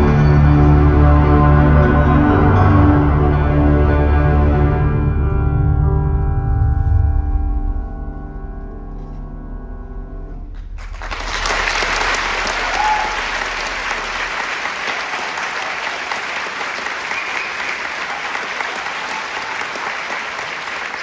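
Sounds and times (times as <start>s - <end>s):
audience applauding: 10.6s - 21.0s
audience cheers: 11.0s - 21.0s.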